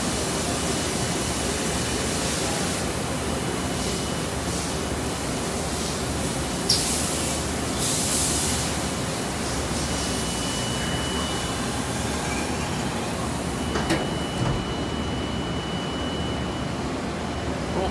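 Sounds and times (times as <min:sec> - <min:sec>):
faint high whine: 0:13.6 - 0:17.9.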